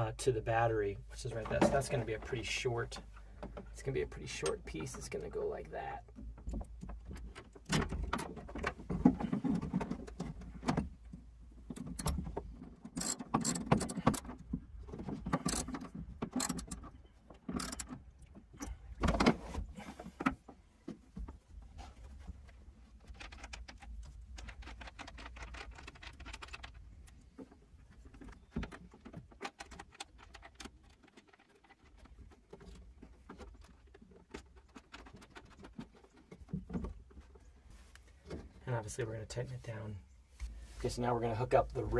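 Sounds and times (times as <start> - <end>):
clicks and rattles of tools: 6.0 - 21.4, 22.4 - 38.5.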